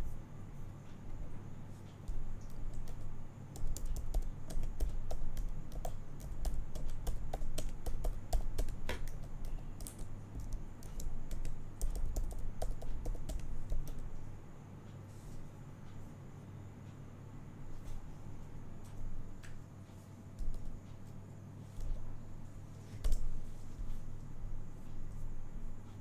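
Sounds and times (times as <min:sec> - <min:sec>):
steady low hum: 0:00.0 - 0:26.0
computer keyboard typing: 0:02.1 - 0:14.1.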